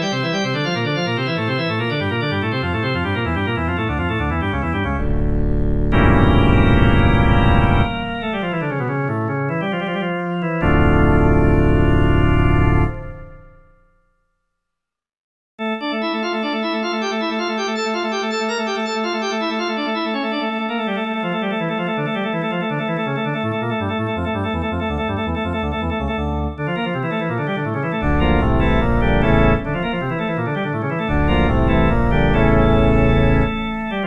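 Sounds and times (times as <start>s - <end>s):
organ-like keyboard music: 0.0s - 13.9s, 15.6s - 34.0s
low bass notes: 4.2s - 8.9s, 28.0s - 30.4s, 31.1s - 34.0s.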